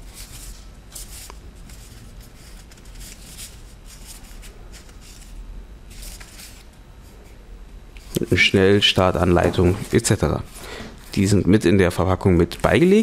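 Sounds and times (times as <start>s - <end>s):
paper leaflets rustling: 0.0s - 6.7s
low steady hum: 0.0s - 13.0s.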